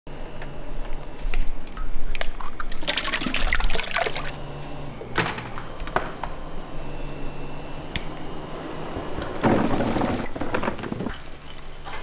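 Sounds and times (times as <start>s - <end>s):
liquid splashing and dripping: 1.8s - 4.3s.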